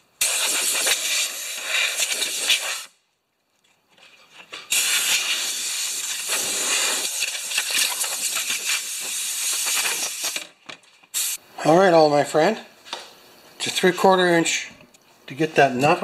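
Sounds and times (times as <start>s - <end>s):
compressed air hissing: 0.0s - 3.0s, 4.7s - 10.5s, 11.1s - 11.4s.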